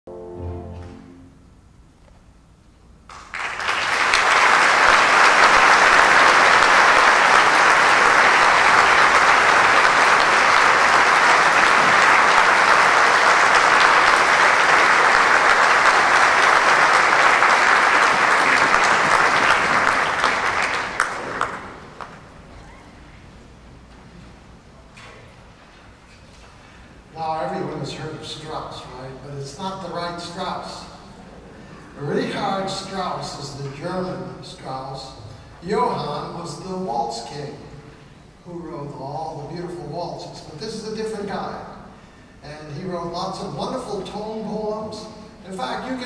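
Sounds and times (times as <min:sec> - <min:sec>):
large audience applauding: 0:03.1 - 0:23.1.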